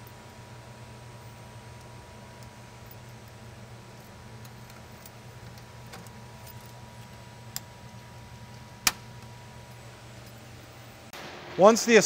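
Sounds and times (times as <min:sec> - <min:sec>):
steady low hum: 0:00.0 - 0:12.0
circuit breaker snap: 0:08.8 - 0:09.3.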